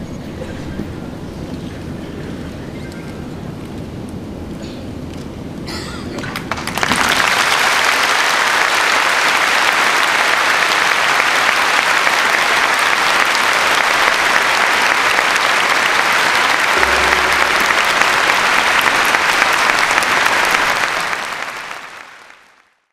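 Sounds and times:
audience applauding: 6.2 - 22.9.

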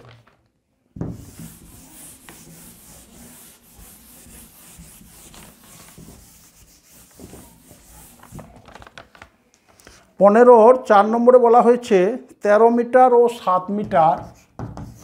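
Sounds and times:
faint rubbing or scratching: 1.1 - 9.0.

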